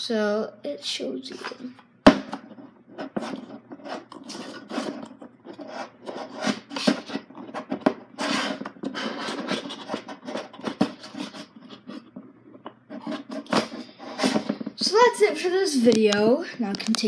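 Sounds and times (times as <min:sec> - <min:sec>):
wood rubbing and scraping: 0:02.3 - 0:15.3.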